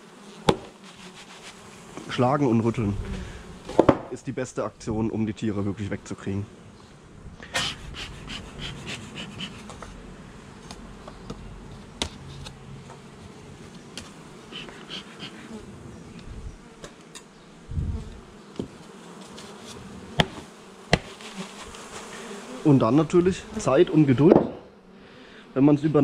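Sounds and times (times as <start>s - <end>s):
honeybees buzzing: 0.0s - 26.0s
sharp knocks: 20.2s - 21.1s, 24.3s - 24.7s
dull thump: 24.3s - 24.7s.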